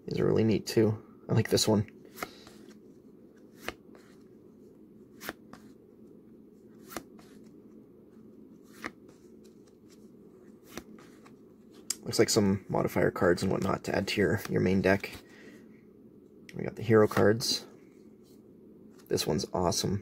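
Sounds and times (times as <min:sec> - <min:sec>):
cards leafed through by hand: 0:08.6 - 0:11.9.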